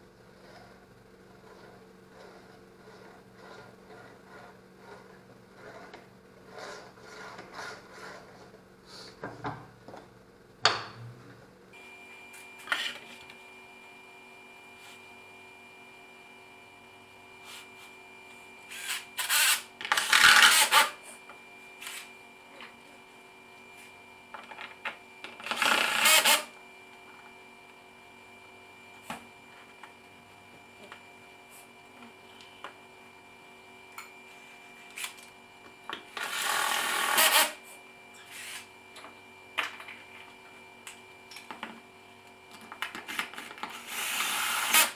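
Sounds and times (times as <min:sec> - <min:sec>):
cordless drill running: 0:18.7 - 0:20.9, 0:25.4 - 0:26.5, 0:36.2 - 0:37.6, 0:43.7 - 0:44.9.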